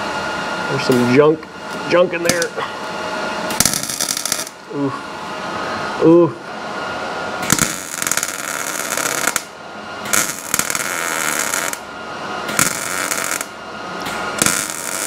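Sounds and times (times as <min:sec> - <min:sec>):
welder arc crackling on sheet metal: 0:03.5 - 0:04.6, 0:07.4 - 0:11.9, 0:12.5 - 0:15.0.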